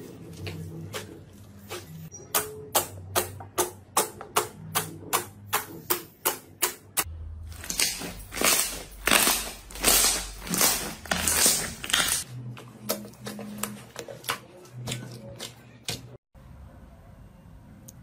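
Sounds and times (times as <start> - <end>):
slime squelching: 7.5 - 16.2.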